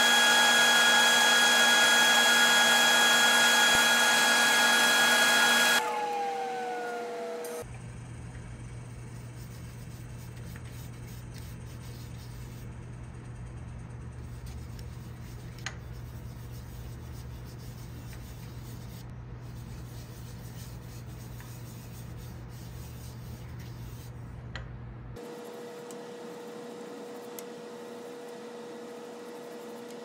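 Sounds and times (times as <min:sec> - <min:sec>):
wood lathe humming: 0:00.0 - 0:07.7
hand rubbing spinning wood: 0:09.0 - 0:13.0, 0:14.1 - 0:24.2.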